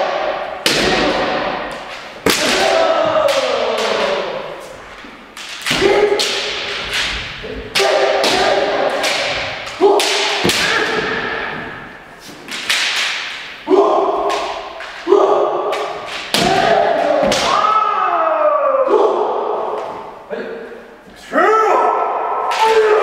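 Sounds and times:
people shouting: 0:00.0 - 0:04.9, 0:05.6 - 0:12.0, 0:13.6 - 0:19.8, 0:21.3 - 0:23.0
bamboo swords striking: 0:00.0 - 0:17.8.

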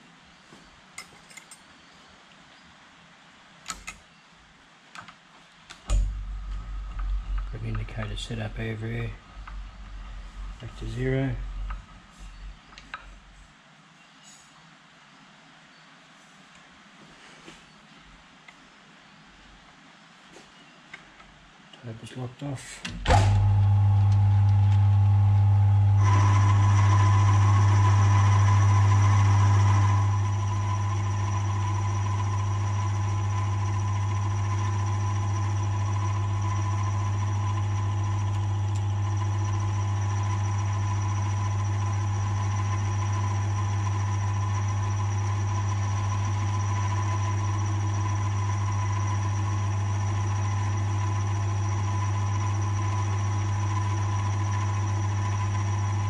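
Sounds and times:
high whine: 0:05.8 - 0:13.4, 0:23.0 - 0:56.0
mill-drill humming: 0:05.9 - 0:12.8, 0:23.0 - 0:56.0.

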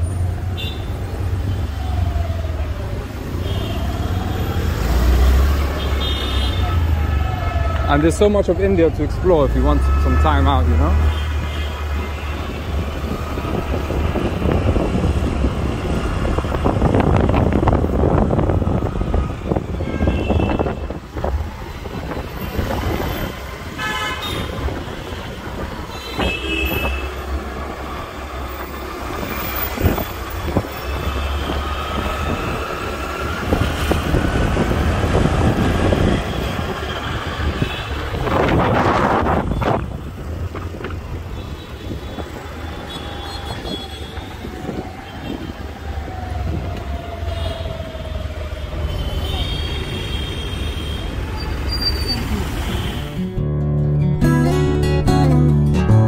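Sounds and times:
vehicle passing rush: 0:00.0 - 0:53.4
vehicle horns honking: 0:05.8 - 0:06.8, 0:19.8 - 0:21.0, 0:23.7 - 0:27.2, 0:48.9 - 0:53.3
wind rumble on microphone: 0:12.5 - 0:23.8, 0:33.3 - 0:42.3.

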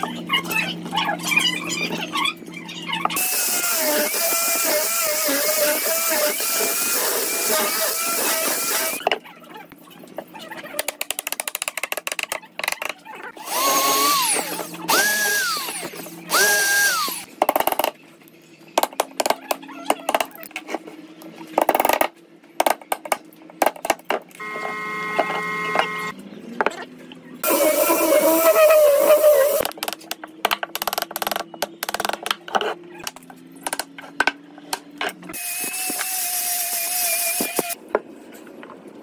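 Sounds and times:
power tool whine: 0:03.2 - 0:09.0, 0:13.4 - 0:17.3, 0:24.4 - 0:26.1, 0:27.4 - 0:29.6, 0:35.4 - 0:37.8.

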